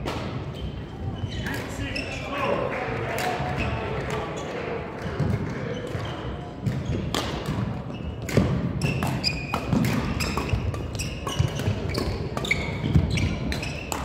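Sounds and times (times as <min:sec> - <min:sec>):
shoes squeaking on floor: 0:00.4 - 0:02.4, 0:05.2 - 0:14.0
racket striking shuttlecock: 0:06.7 - 0:14.0.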